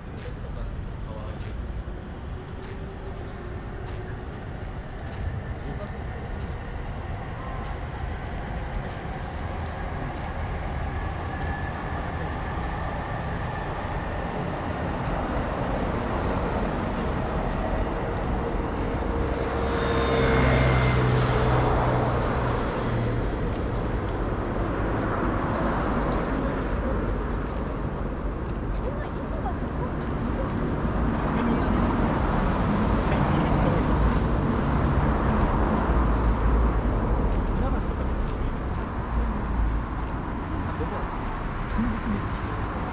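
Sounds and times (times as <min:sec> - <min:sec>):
street traffic rumble: 0:00.0 - 0:42.9.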